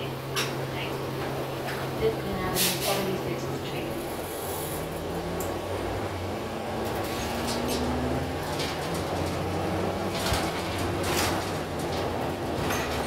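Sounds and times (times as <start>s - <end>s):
bus engine drone: 0.0s - 13.0s
road noise: 0.0s - 13.0s.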